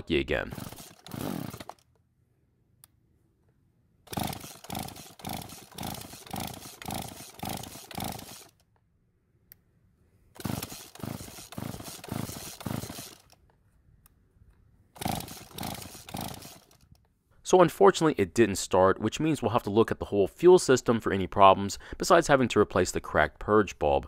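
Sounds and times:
chainsaw pull-starts cranking: 0.4s - 2.0s, 4.1s - 8.7s, 10.4s - 13.5s, 14.9s - 17.0s.

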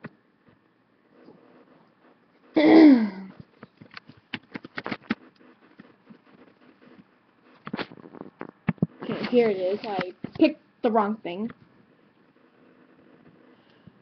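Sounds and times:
mouse and keyboard clicks: 3.6s - 5.9s.

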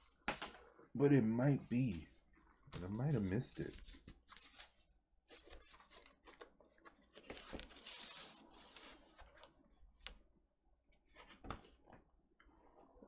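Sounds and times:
paper and card rustling: 2.7s - 9.6s.

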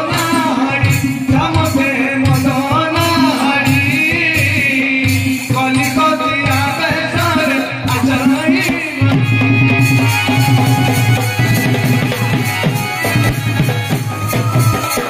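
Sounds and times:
person singing folk song: 0.0s - 10.1s
hand drum percussion: 0.0s - 15.0s.

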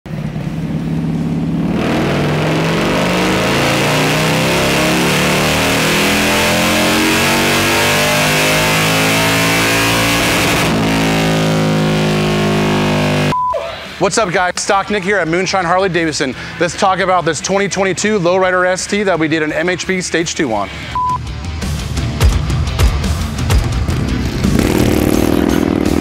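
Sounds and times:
motorcycle engine revving: 0.1s - 13.3s, 21.7s - 26.0s.

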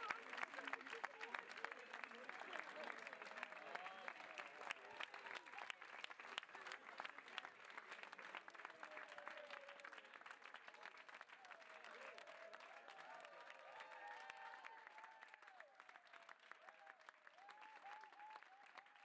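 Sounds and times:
crowd clapping: 0.0s - 19.0s.

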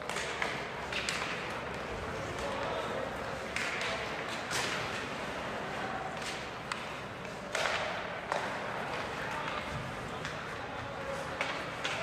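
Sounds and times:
puck and sticks knocking: 6.2s - 12.0s.

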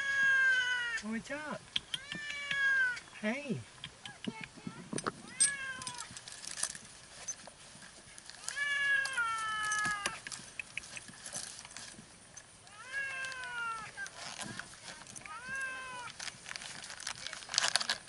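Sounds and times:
cat meowing: 2.0s - 3.0s, 5.2s - 6.1s, 8.4s - 10.2s, 12.7s - 13.9s, 15.3s - 16.1s.

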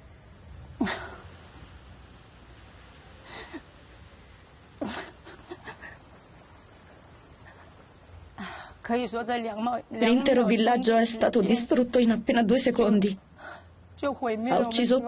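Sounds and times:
low steady hum: 0.0s - 15.0s
woman sobbing: 0.8s - 1.3s, 3.2s - 3.7s, 4.8s - 6.2s.

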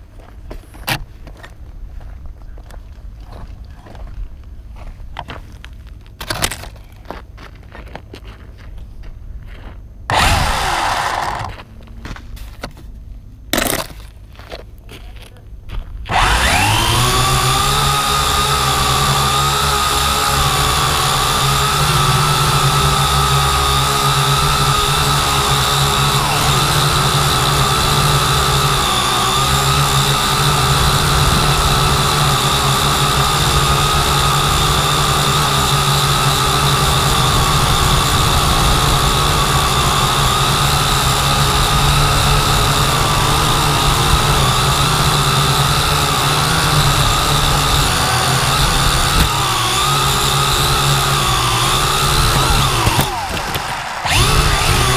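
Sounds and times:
drone propellers whining: 10.1s - 12.2s, 16.1s - 54.9s.

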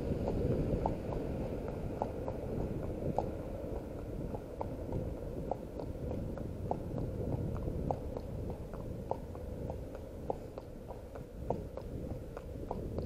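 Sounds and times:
horse hooves on tarmac: 0.0s - 13.0s
steady low rumble: 0.0s - 13.0s.

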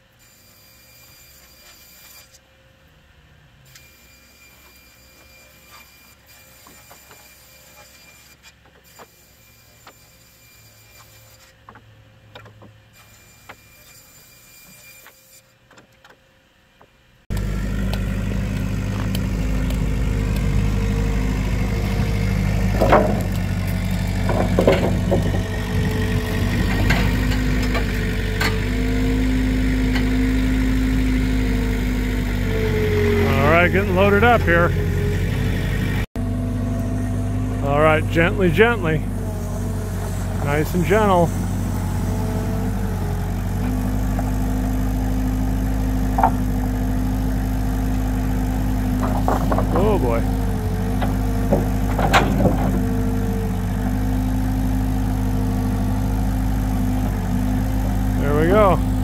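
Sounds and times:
vehicle engine running: 17.3s - 59.0s
knocks and rattles: 18.8s - 28.8s, 48.6s - 54.0s.

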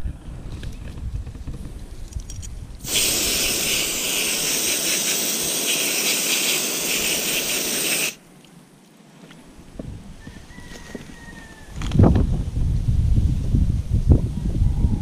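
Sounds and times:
hose nozzle spraying water: 2.8s - 8.2s.

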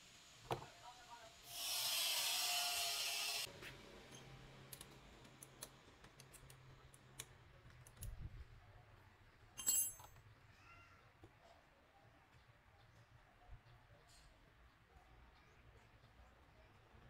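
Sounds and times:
metallic clink: 9.6s - 10.2s.

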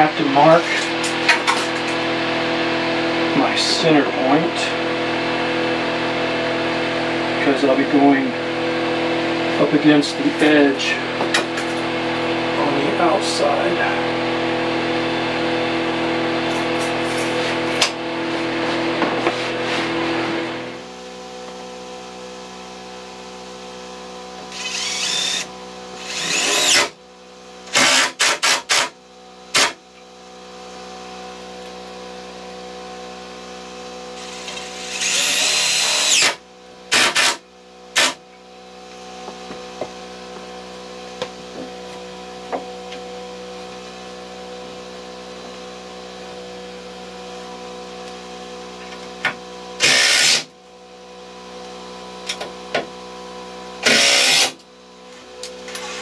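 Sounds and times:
cordless drill driving into wood: 24.6s - 26.9s, 27.7s - 28.9s, 29.5s - 29.8s, 34.2s - 37.4s, 38.0s - 38.2s, 49.8s - 50.5s, 53.8s - 54.6s.

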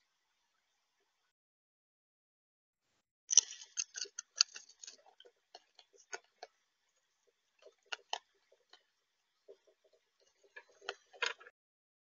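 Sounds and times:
raccoon clicking and crunching: 3.3s - 6.5s, 7.6s - 8.8s.

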